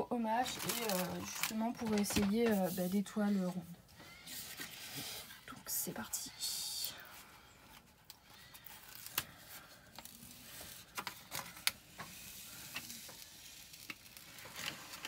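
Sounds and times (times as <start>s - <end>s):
plastic film peeling and crinkling: 0.2s - 3.6s, 7.1s - 15.0s.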